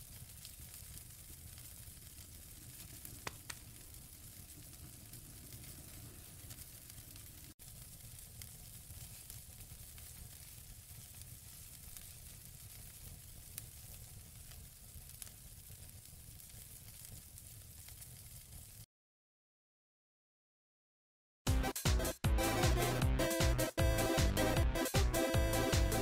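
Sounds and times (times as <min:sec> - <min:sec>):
sizzling hiss on grill: 0:00.0 - 0:18.8
sharp crackles: 0:00.0 - 0:18.9.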